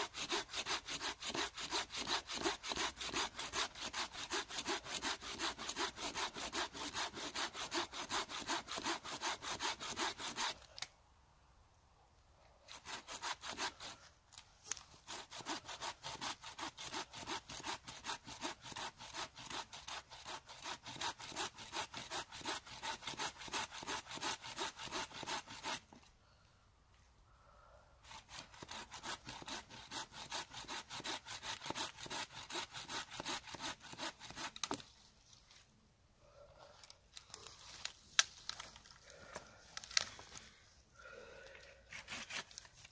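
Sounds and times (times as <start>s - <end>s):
hand saw cutting wood: 0.0s - 10.7s, 12.7s - 14.1s, 14.7s - 26.0s, 28.0s - 34.8s, 41.9s - 42.9s.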